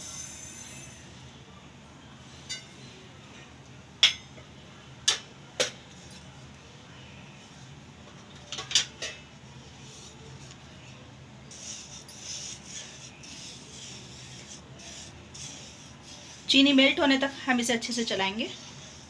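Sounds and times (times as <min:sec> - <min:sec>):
sugar crystals scraping pan: 0:11.7 - 0:19.0.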